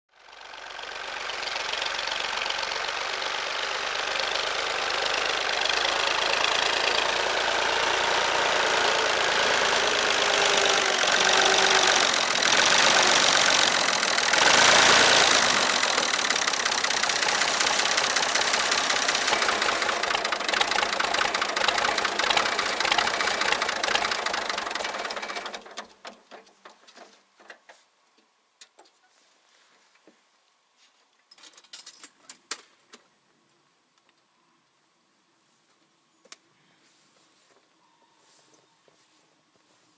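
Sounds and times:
tractor engine running: 0:00.2 - 0:27.1.

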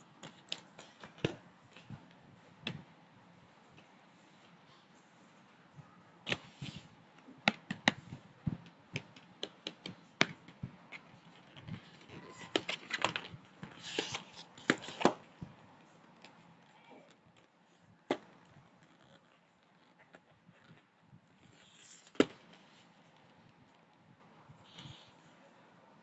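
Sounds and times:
paper rustling: 0:09.8 - 0:15.4.

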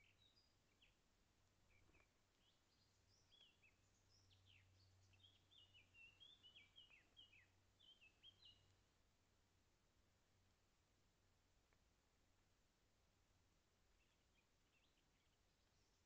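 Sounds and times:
birds chirping: 0:00.0 - 0:08.8, 0:13.9 - 0:16.0.

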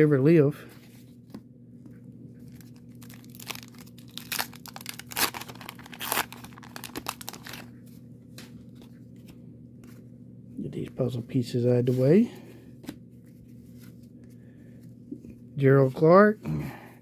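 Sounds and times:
wax-paper wrapper tearing and crinkling: 0:02.5 - 0:07.7.

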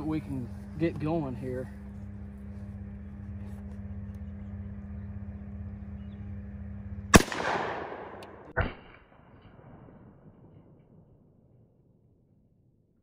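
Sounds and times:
low hum: 0:00.0 - 0:13.0
rifle shot with echo: 0:07.1 - 0:10.8.

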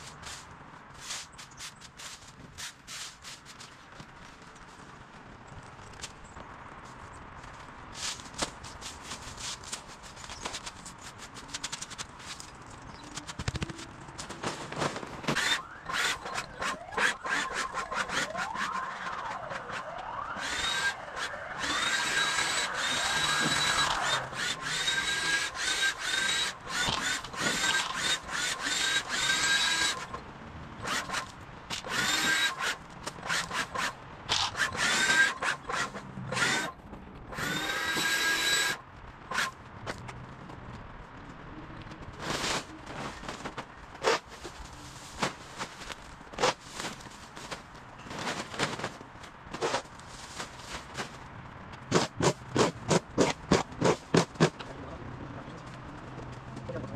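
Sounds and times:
clicks and scrapes: 0:08.0 - 0:30.2
electric motor whining: 0:15.3 - 0:30.2, 0:37.4 - 0:39.5.

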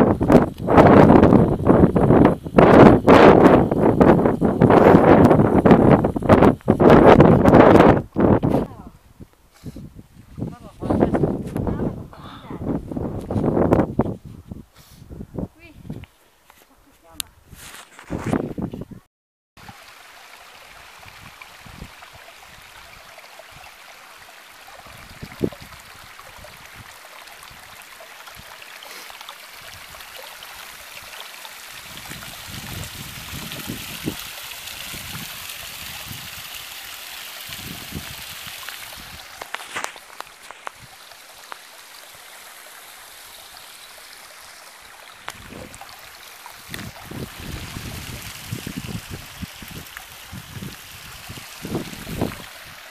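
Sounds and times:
spring water trickling over rock: 0:00.0 - 0:08.8, 0:19.6 - 0:52.9.

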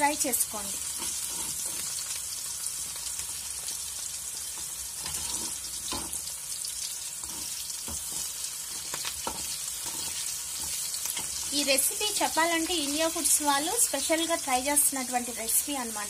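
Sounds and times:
onions sizzling in hot oil: 0:00.0 - 0:16.0
spatula scraping pan: 0:00.8 - 0:02.2, 0:04.5 - 0:06.3, 0:07.0 - 0:12.3.

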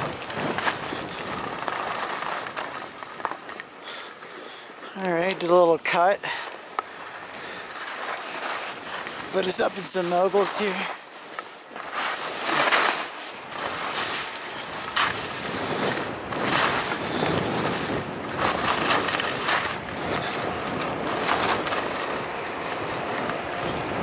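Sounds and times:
wind rushing over microphone: 0:00.0 - 0:03.1, 0:11.7 - 0:24.0
skis scraping over snow: 0:00.0 - 0:24.0.

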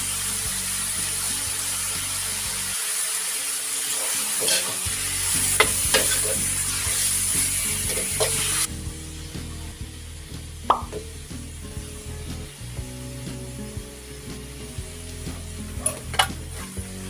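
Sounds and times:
beef sizzling in a wok: 0:00.0 - 0:17.0
metal ladle scraping a wok: 0:04.3 - 0:08.7.

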